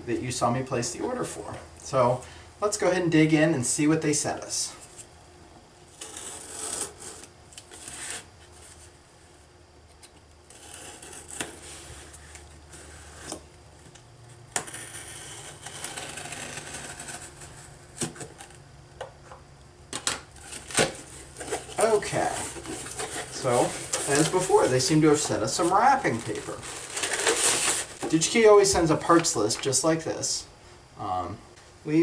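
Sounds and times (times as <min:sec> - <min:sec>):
knife slicing packing tape: 0:05.9 - 0:08.3, 0:10.5 - 0:12.4, 0:14.6 - 0:18.5.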